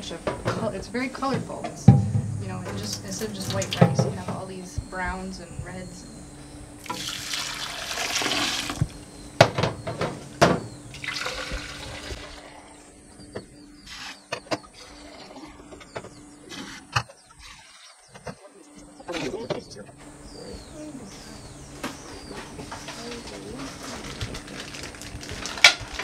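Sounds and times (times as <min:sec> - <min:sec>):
water pouring into a pot: 0:06.8 - 0:08.8, 0:11.0 - 0:12.1.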